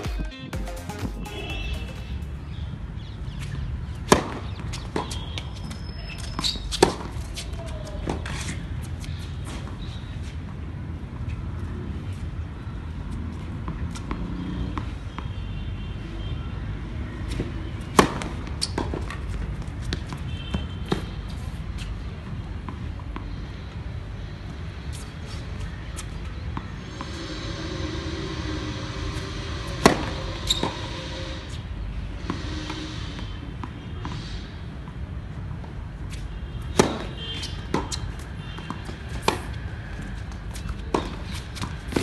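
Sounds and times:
tennis rackets hitting ball: 4.0s - 5.3s, 6.1s - 8.2s, 36.7s - 39.6s.

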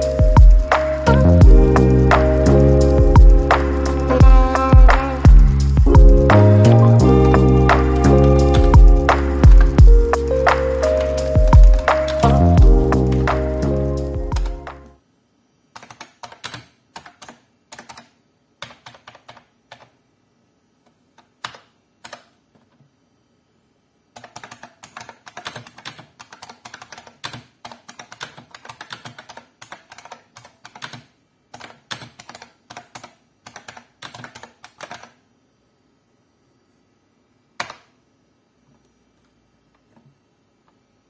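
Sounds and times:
keyboard keys clicking: 0.0s - 14.9s, 15.8s - 19.9s, 24.2s - 35.2s.

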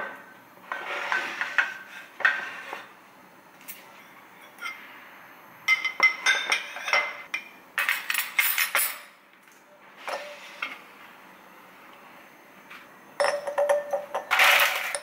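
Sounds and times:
bowls and cutlery clinking: 5.7s - 9.1s, 13.2s - 15.0s.

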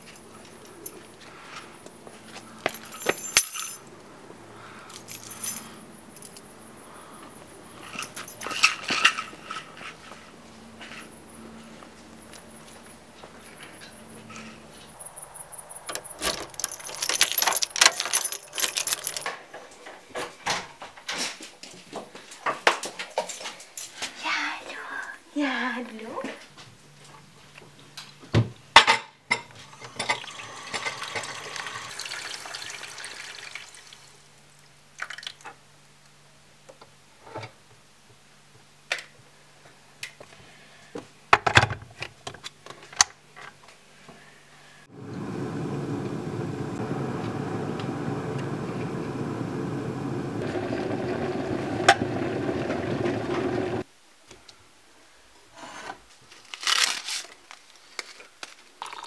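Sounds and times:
tap water running: 29.8s - 34.1s
electric kettle rushing rumble: 44.9s - 53.8s.

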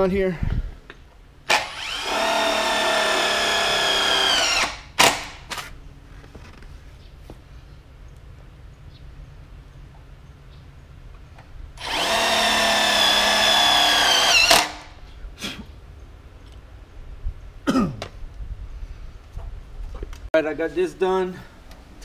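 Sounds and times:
cordless drill on metal frame: 1.5s - 5.4s, 11.8s - 15.0s.

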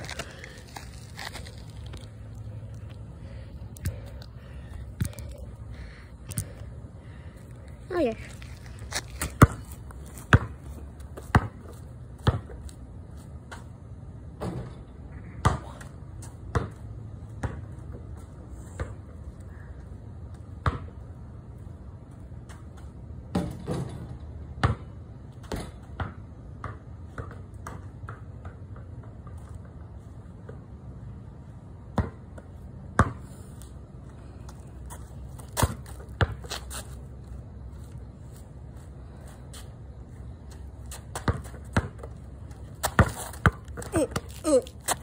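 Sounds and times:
steady low hum: 0.0s - 23.4s
basketball bouncing on concrete: 8.9s - 12.8s, 15.4s - 18.1s, 20.3s - 21.0s, 23.3s - 29.4s, 31.9s - 33.3s, 34.9s - 36.7s, 40.5s - 45.0s.

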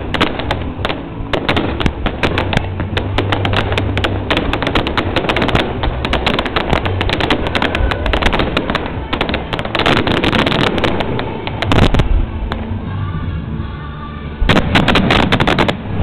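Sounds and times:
fireworks bangs and crackles: 0.0s - 12.8s, 14.4s - 16.0s
continuous fireworks rumble: 0.0s - 16.0s.

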